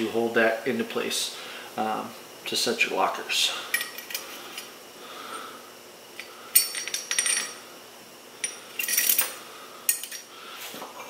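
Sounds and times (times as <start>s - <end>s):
steel parts clinking: 6.2s - 7.6s, 8.4s - 10.3s.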